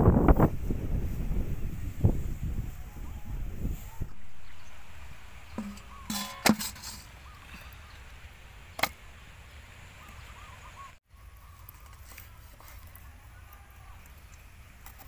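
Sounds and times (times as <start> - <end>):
sharp knocks in a bucket: 5.5 - 7.0, 8.8 - 9.0.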